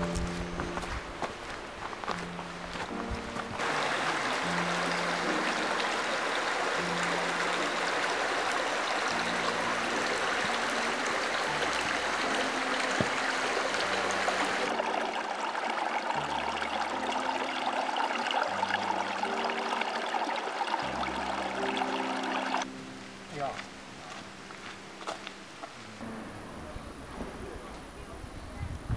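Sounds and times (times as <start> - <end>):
stream babbling over stones: 1.6 - 22.7.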